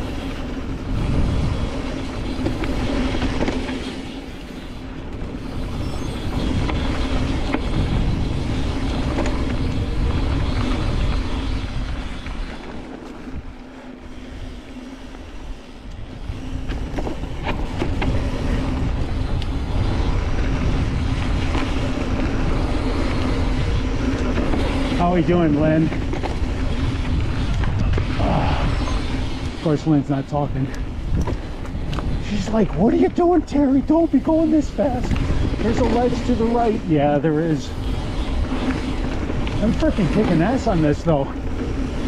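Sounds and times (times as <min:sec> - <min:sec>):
bike knocking and clattering: 0:00.0 - 0:13.4, 0:15.9 - 0:28.2
bike tyres on dirt: 0:00.0 - 0:42.0
wind rushing over microphone: 0:00.0 - 0:42.0.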